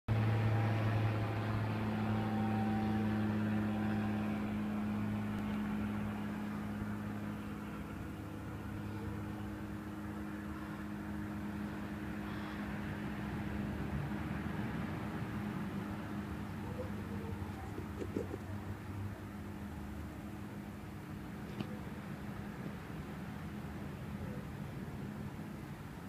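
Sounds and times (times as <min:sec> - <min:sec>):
low mechanical hum: 0:00.1 - 0:26.0.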